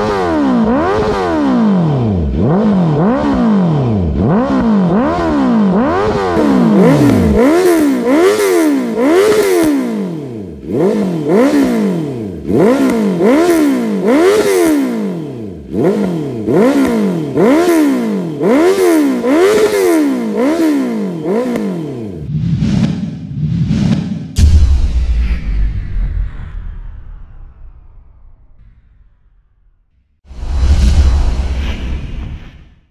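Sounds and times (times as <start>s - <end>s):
motorcycle engine revving: 0.0s - 24.5s.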